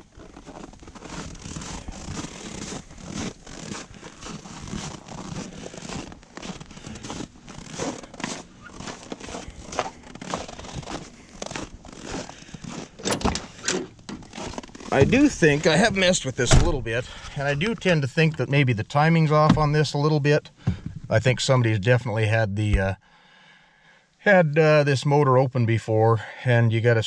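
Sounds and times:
footsteps crunching in snow: 0.0 - 16.4
car door opening clack: 16.4 - 16.9.

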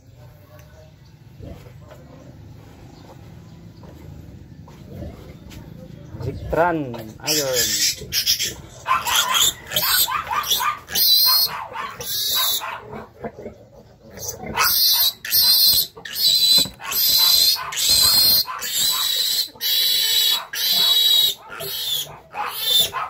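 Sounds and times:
piglet squealing: 7.2 - 13.0, 14.2 - 23.0.

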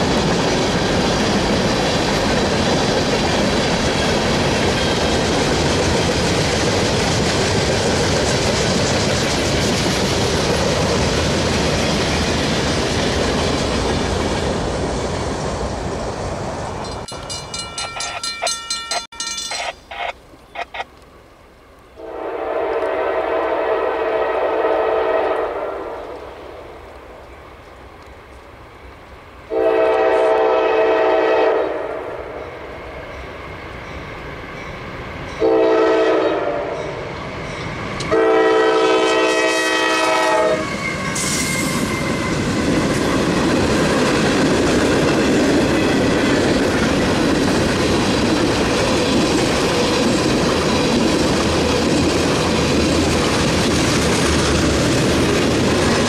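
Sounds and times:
freight train rumbling and clacking: 0.0 - 20.8, 29.5 - 56.0
train air horn blasts: 22.0 - 26.2, 29.5 - 32.4, 35.4 - 37.0, 38.1 - 42.0.

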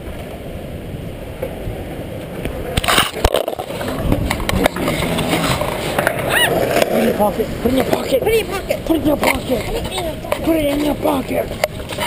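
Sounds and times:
low rumble: 3.5 - 7.7.

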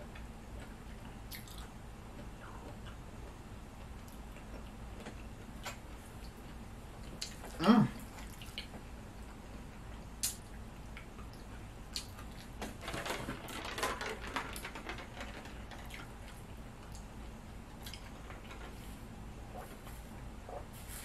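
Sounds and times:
person chewing food: 0.1 - 10.4.

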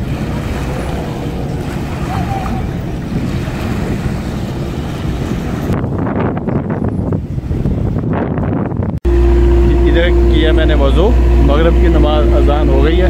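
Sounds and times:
small waves washing: 0.0 - 8.0
wind on microphone: 0.0 - 13.0
faint voices: 0.6 - 3.0.

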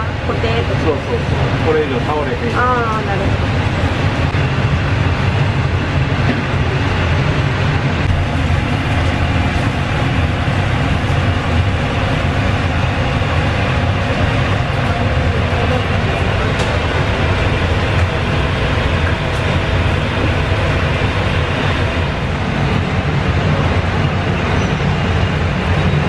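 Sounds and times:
kitchen ventilation fan rumble: 0.0 - 26.0.

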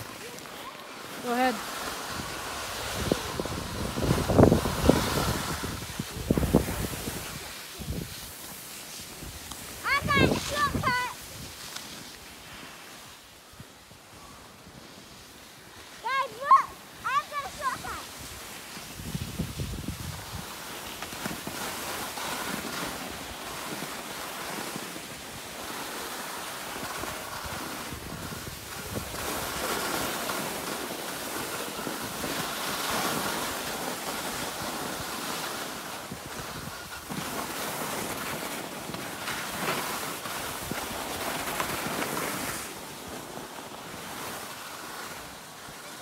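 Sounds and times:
skis scraping over snow: 0.0 - 46.0
wind rushing over microphone: 1.2 - 8.4, 9.0 - 11.6, 17.3 - 20.6, 27.0 - 29.6.

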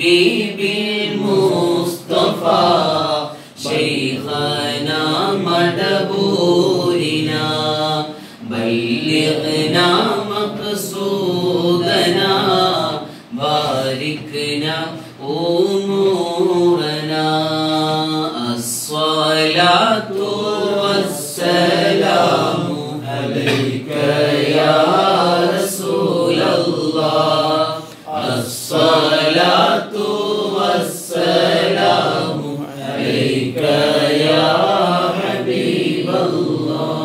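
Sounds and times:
man chanting unaccompanied: 0.0 - 37.0.

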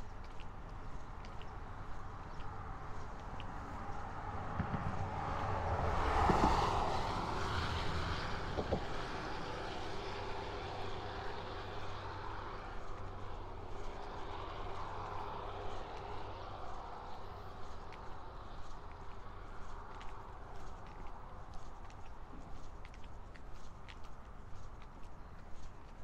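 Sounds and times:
vehicle passing: 2.4 - 22.7.

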